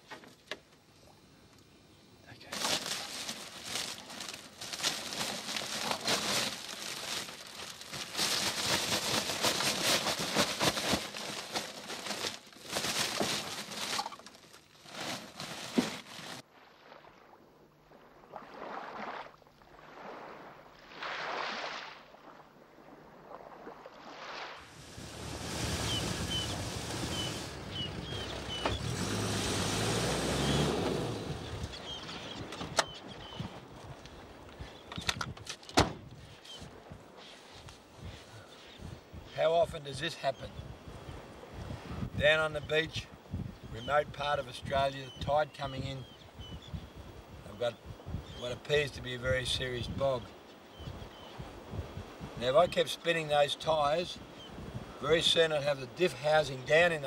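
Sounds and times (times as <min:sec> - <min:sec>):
hessian sack rustling: 0:02.5 - 0:16.4
wheels spinning in sand: 0:24.8 - 0:32.2
engine revving: 0:25.0 - 0:31.5
small birds chirping: 0:25.9 - 0:29.0, 0:31.3 - 0:33.6, 0:43.5 - 0:48.5.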